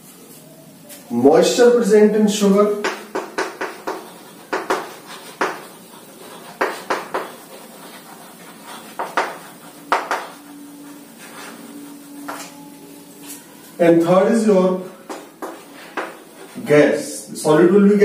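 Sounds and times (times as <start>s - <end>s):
chalk tapping and scratching: 2.5s - 13.6s, 14.8s - 16.8s.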